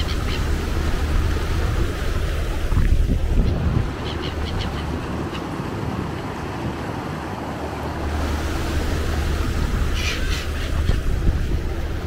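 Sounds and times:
water rushing around boat: 0.0 - 12.0.

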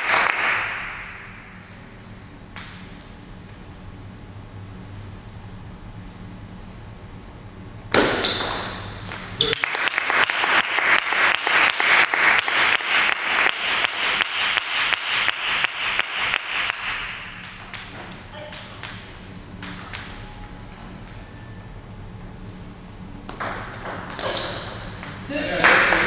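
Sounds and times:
spectators clapping: 0.0 - 1.3, 9.4 - 17.8, 25.5 - 26.0.

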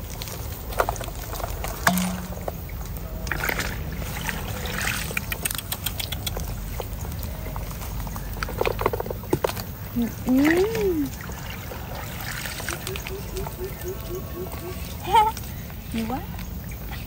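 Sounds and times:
muddy water sloshing and draining: 0.0 - 15.9
clicks on metal basin: 1.9 - 2.6
small splashes: 3.3 - 6.2, 10.0 - 13.8.

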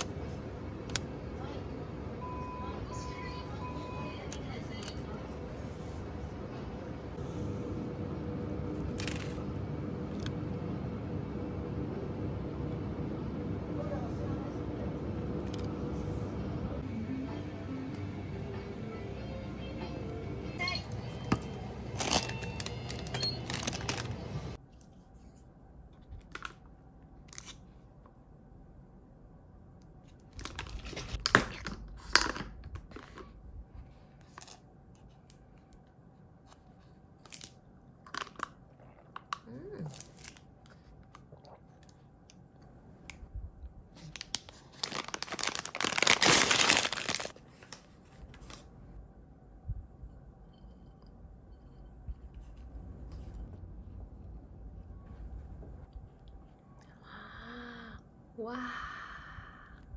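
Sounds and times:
snack wrapper tearing and crinkling: 9.0 - 9.4, 21.9 - 24.3, 37.2 - 38.6, 39.8 - 40.5, 44.0 - 48.6
background music: 16.8 - 24.6.

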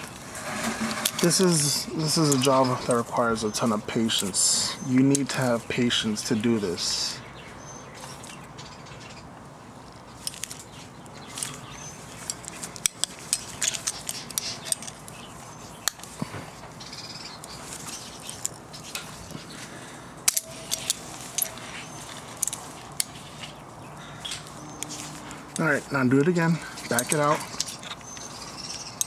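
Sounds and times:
thread tap clicking and scraping metal: 11.4 - 16.3, 20.2 - 23.6, 26.8 - 29.0.

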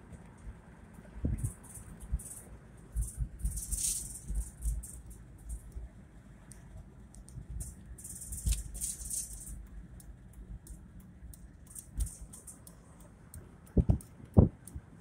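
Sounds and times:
car rumble from inside cabin: 0.0 - 15.0.

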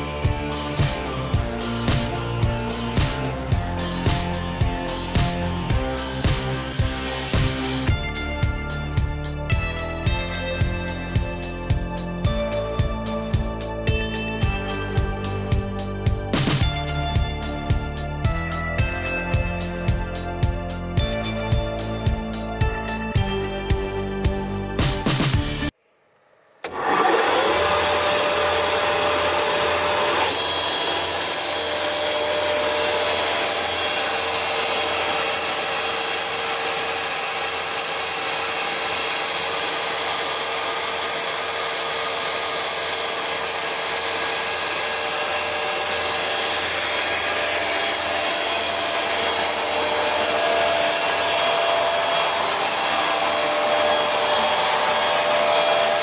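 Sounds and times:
panel saw motor whining: 26.6 - 56.0.

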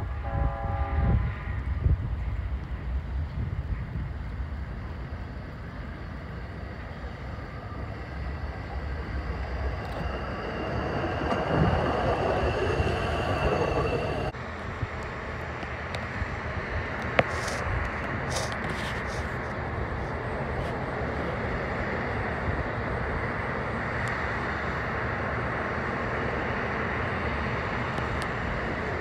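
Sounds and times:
outdoor background noise: 0.0 - 29.0
thin high whine: 4.8 - 14.4.

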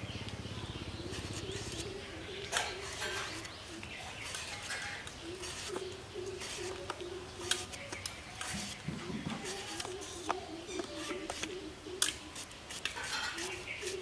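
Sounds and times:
blade scraping banana skin: 1.0 - 14.0
dove cooing: 5.2 - 7.5.

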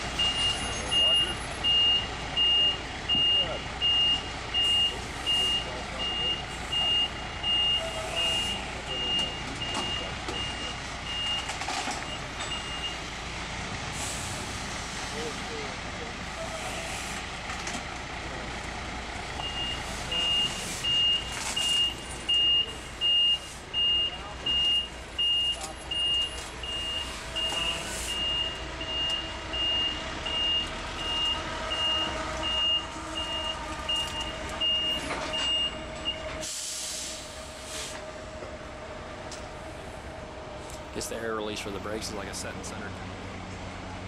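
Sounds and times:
truck engine running: 0.0 - 44.0
reversing alarm beeping: 0.1 - 13.1, 19.4 - 37.4
air brake hiss: 14.0 - 14.5, 36.4 - 38.0.

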